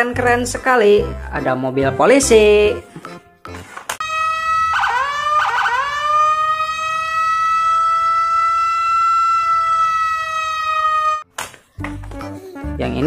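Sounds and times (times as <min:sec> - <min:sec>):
police siren: 0:04.0 - 0:11.3.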